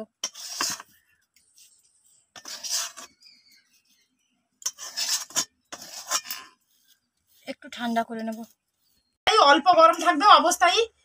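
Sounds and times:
spatula scraping metal pan: 0:00.0 - 0:01.0, 0:02.3 - 0:04.0, 0:04.6 - 0:07.0.

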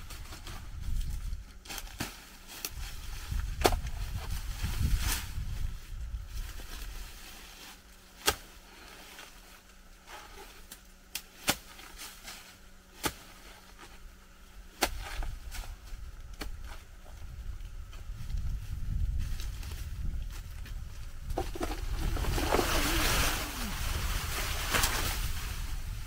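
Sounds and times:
low rumble: 0:17.1 - 0:26.0.

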